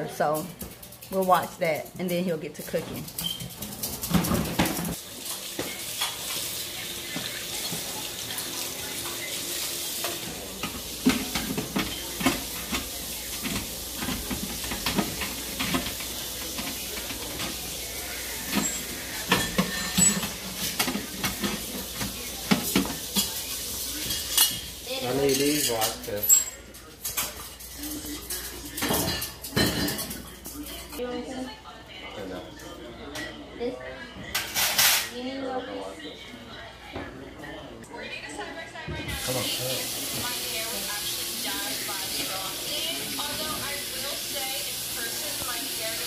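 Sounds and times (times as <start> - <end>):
trays clattering against sink: 2.8 - 8.4, 9.8 - 26.5
running water hissing: 3.1 - 25.7, 39.2 - 46.0.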